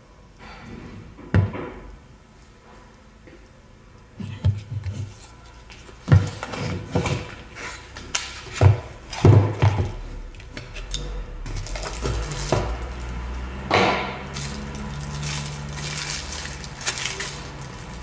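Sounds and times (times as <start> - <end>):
plastic bag rustling: 11.4 - 13.4, 14.2 - 18.0.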